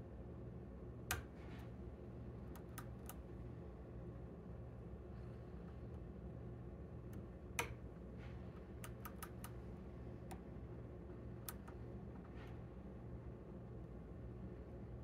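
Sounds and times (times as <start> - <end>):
faint low hum: 0.0 - 15.0.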